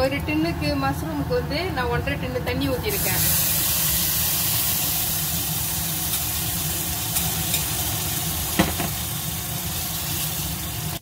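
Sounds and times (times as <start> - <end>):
sauce sizzling in a pan: 2.9 - 11.0.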